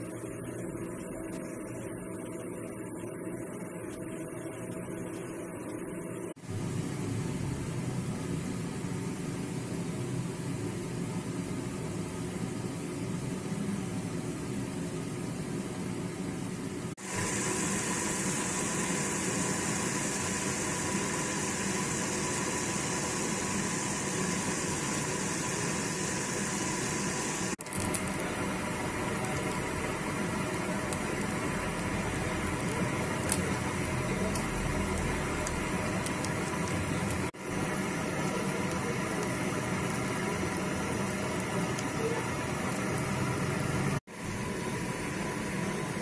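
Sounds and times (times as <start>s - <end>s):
steady hum: 0.0s - 46.0s
meat sizzling in a pan: 17.0s - 46.0s.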